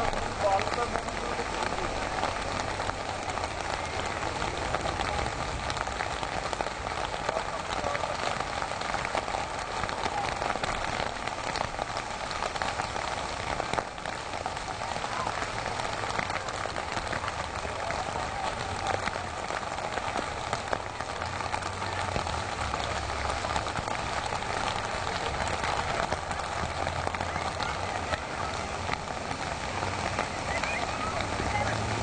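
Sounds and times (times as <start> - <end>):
crackling noise: 0.0 - 32.0.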